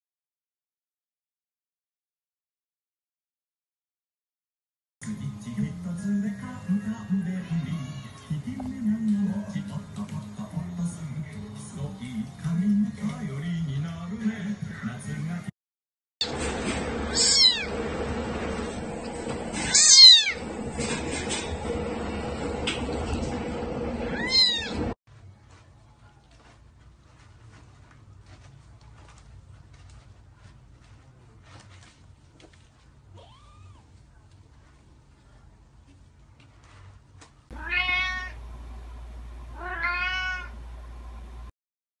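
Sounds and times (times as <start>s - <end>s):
steady low hum: 16.3s - 41.5s
kitten meowing: 17.1s - 17.7s, 19.7s - 20.4s, 24.1s - 24.8s, 33.1s - 33.9s, 37.6s - 38.4s, 39.6s - 40.5s.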